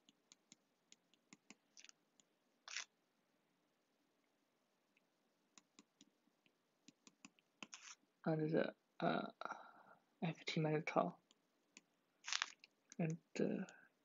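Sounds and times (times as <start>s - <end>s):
soft stylus scratch: 7.6s - 8.0s.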